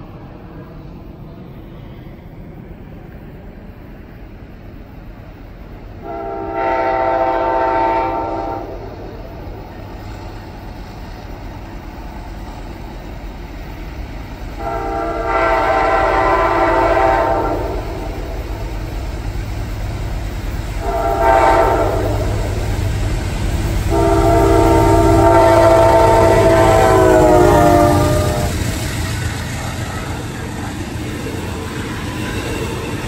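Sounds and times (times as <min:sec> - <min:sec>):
train rumbling: 0:00.0 - 0:33.0
train air horn blasts: 0:06.0 - 0:09.2, 0:14.6 - 0:18.7, 0:20.8 - 0:23.0, 0:23.6 - 0:28.6.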